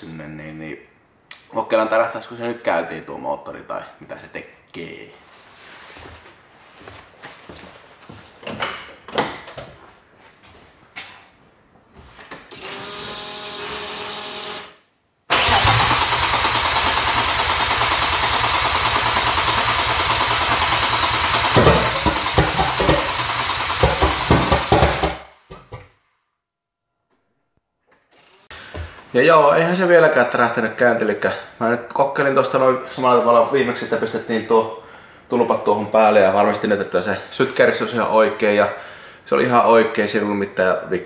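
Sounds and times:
engine cranking on starter: 15.3 - 25.4.

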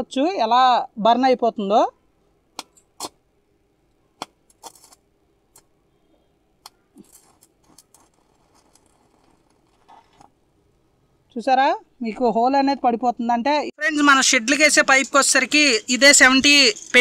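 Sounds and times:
welding arc crackling and sizzling: 4.5 - 5.7, 7.0 - 10.4, 14.5 - 17.0.

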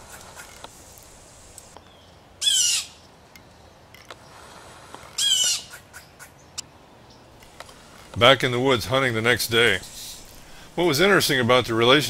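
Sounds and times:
blue jay scolding calls: 2.4 - 3.1, 5.2 - 6.6.

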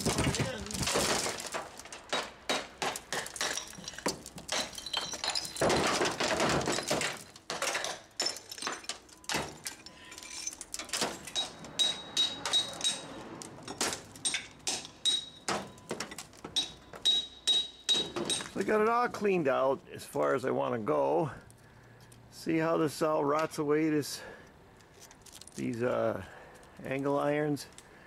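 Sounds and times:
broken pieces clattering: 0.0 - 18.7.

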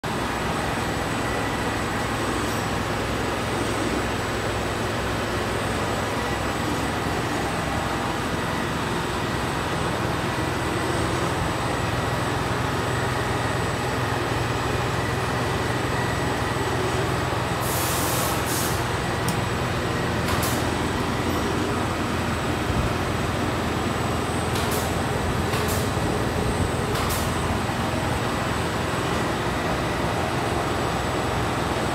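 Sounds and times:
workshop machinery humming: 0.0 - 31.9
short bursts of hiss: 17.6 - 18.8.

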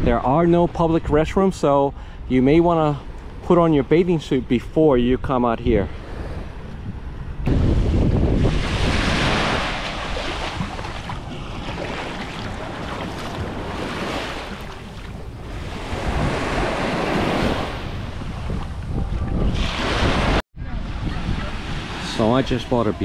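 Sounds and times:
wind noise on microphone: 0.0 - 23.0
surf washing onto beach: 7.4 - 23.0.

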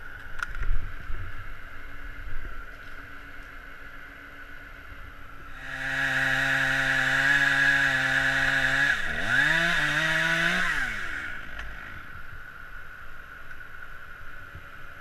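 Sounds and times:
chainsaw revving: 5.5 - 12.1.

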